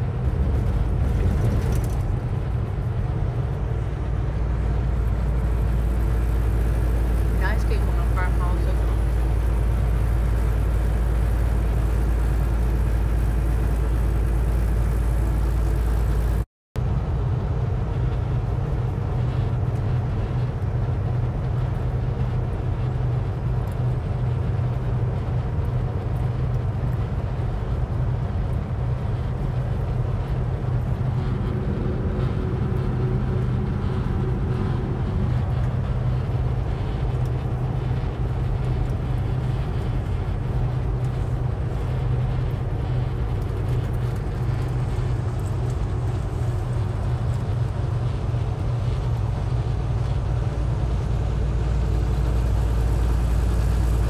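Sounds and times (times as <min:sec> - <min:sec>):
truck engine and road noise: 0:00.0 - 0:54.0.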